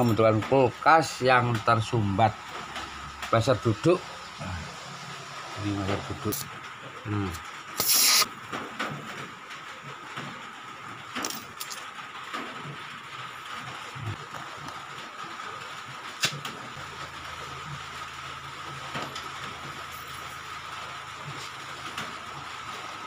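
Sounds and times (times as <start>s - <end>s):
gas torch flame hissing: 7.2s - 8.3s.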